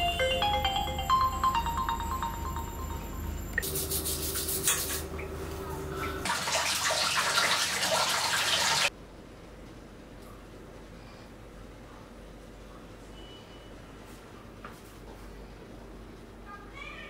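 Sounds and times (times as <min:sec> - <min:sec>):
toothbrush scrubbing teeth: 0:03.6 - 0:05.0
shower running: 0:03.6 - 0:08.9.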